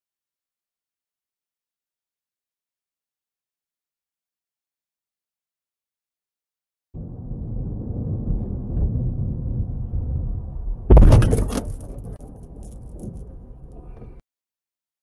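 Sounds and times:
loud car crash: 7.0s - 13.4s
car road and engine rumble: 7.0s - 14.2s.

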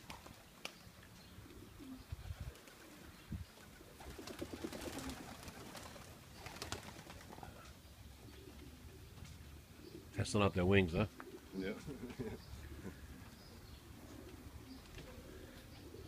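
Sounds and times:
wings flapping: 0.0s - 0.8s, 2.4s - 7.6s
pigeons cooing: 1.2s - 10.2s, 11.1s - 16.0s.

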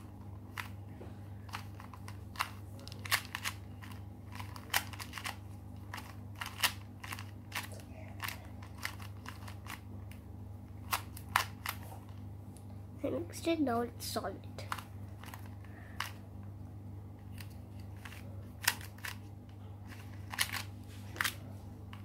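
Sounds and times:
plastic puzzle cube clicking: 1.5s - 9.8s.

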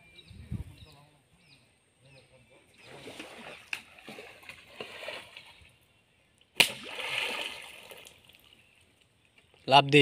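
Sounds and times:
body slapping into water: 2.8s - 5.6s, 6.6s - 8.5s
water splashing: 2.8s - 5.8s, 6.6s - 8.8s.

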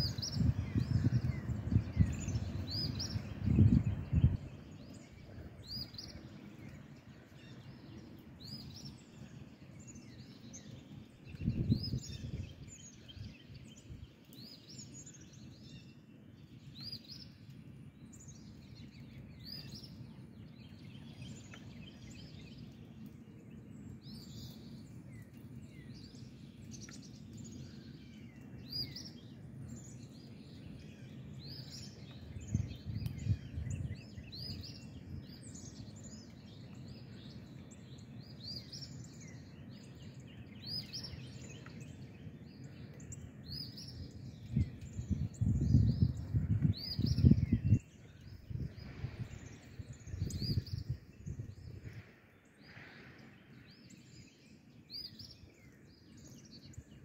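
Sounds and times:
wind buffeting microphone: 0.0s - 6.9s, 11.1s - 14.2s, 29.8s - 39.8s, 41.8s - 53.7s
birds chirping: 0.0s - 57.0s.

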